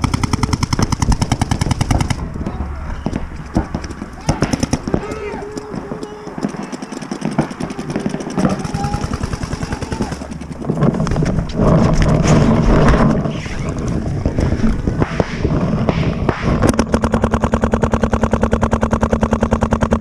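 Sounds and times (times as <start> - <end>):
paintball marker rapid fire: 0.0 - 2.3, 3.0 - 20.0
distant paintball shots: 0.0 - 20.0
camera bumping and rubbing: 3.0 - 8.6, 10.3 - 20.0.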